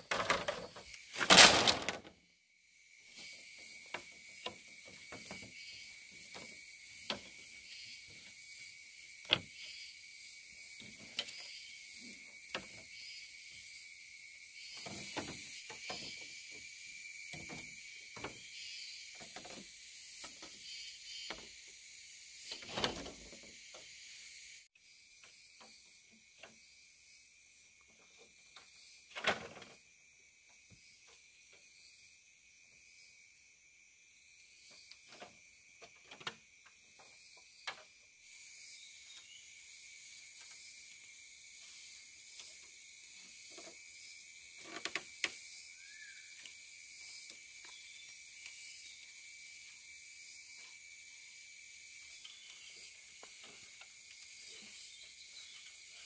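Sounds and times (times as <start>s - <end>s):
bamboo slats clattering: 0.0s - 2.1s
high insect drone: 0.0s - 56.0s.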